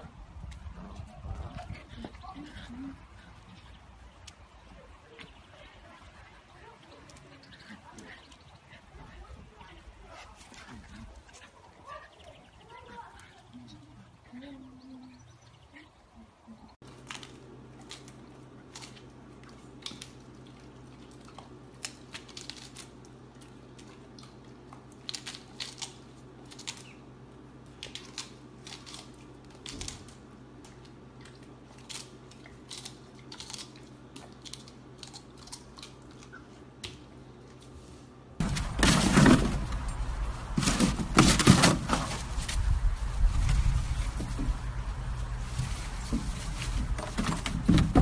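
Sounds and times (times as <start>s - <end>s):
steady low hum: 0.0s - 48.0s
dog crunching lettuce: 16.8s - 48.0s.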